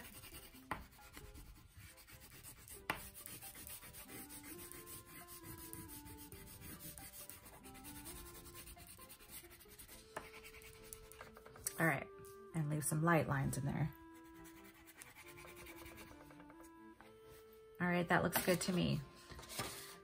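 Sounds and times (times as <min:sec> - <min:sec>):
crayon scratching on paper: 0:00.0 - 0:11.5, 0:14.1 - 0:16.4
faint background music: 0:00.0 - 0:20.0.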